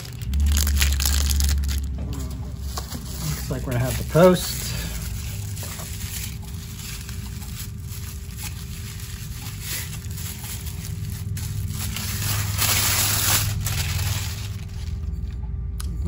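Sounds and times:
paper rustling and crinkling: 0:00.0 - 0:15.4.

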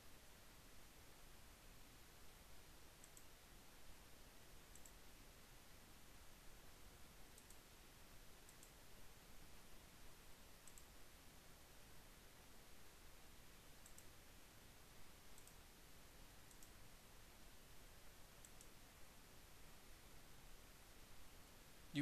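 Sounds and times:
low steady hiss: 0:00.0 - 0:22.0
computer mouse clicks: 0:03.0 - 0:03.4, 0:04.6 - 0:05.0, 0:07.3 - 0:07.6, 0:08.4 - 0:08.8, 0:10.6 - 0:11.0, 0:13.8 - 0:14.2, 0:15.3 - 0:15.6, 0:16.4 - 0:16.8, 0:18.4 - 0:18.8.

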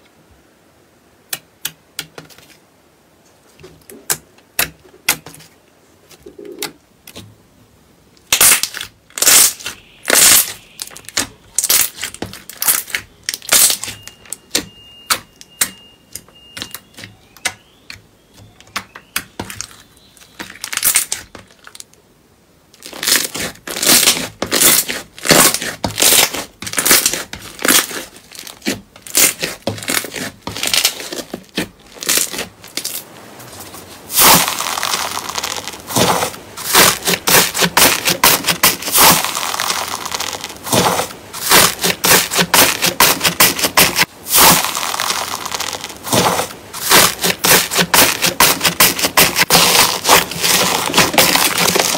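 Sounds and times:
slime popping and crackling: 0:08.2 - 0:17.8, 0:19.0 - 0:21.9, 0:22.8 - 0:33.0, 0:34.1 - 0:51.9.

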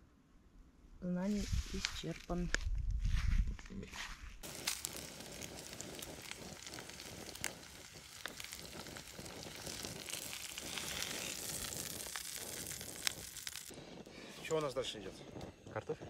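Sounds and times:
food sizzling in a frying pan: 0:04.4 - 0:15.2.

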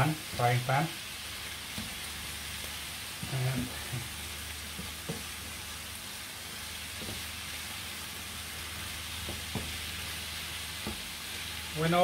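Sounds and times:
chicken sizzling in frying pan: 0:00.0 - 0:12.0
spatula knocking against pan: 0:09.2 - 0:09.8.

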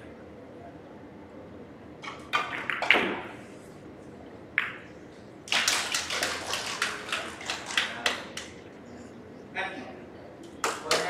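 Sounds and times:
cue striking ball: 0:02.1 - 0:03.4, 0:04.6 - 0:04.9
billiard balls clicking: 0:04.6 - 0:04.9, 0:05.5 - 0:08.6
people clapping: 0:05.5 - 0:08.6, 0:10.4 - 0:11.0.

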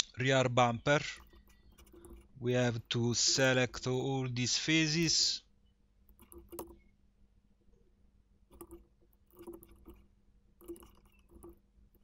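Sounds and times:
computer mouse clicking: 0:01.2 - 0:02.3, 0:06.1 - 0:06.9, 0:08.5 - 0:12.0.

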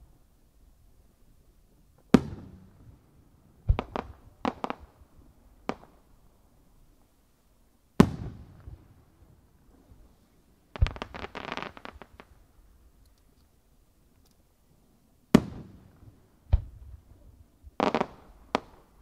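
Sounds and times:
sharp firework cracks: 0:08.0 - 0:08.7, 0:10.8 - 0:12.4, 0:15.3 - 0:15.9, 0:17.8 - 0:19.0.

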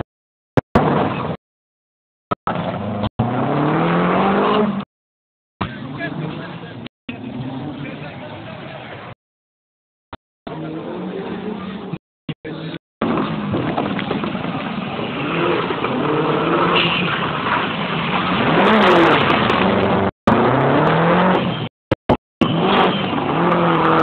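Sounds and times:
rally car engine revving hard: 0:02.6 - 0:04.9, 0:18.2 - 0:21.6, 0:22.4 - 0:24.0.

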